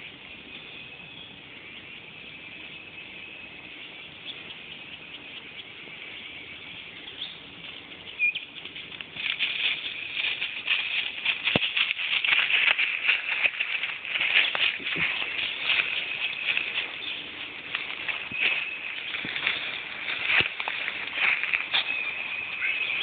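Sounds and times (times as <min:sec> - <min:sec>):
footsteps crunching dry leaves: 0:07.6 - 0:23.0.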